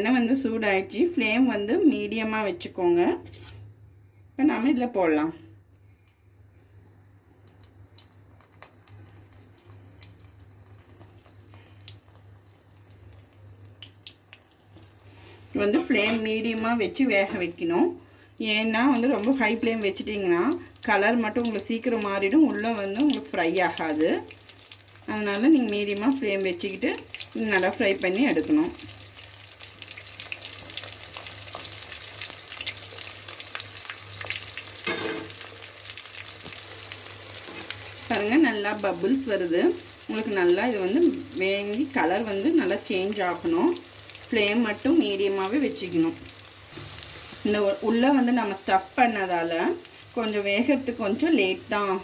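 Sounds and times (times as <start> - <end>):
faint crackles and pops: 5.7 - 15.6
food frying in oil: 6.8 - 52.0.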